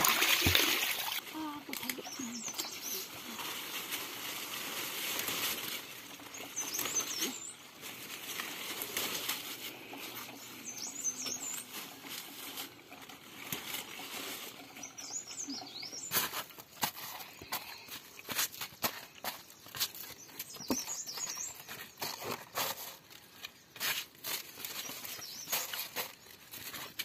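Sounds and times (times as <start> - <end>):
leaves rustling: 0.0 - 27.0
bird singing: 1.4 - 3.2, 6.2 - 7.7, 10.0 - 11.8, 14.7 - 16.2, 18.8 - 22.4, 24.7 - 26.4.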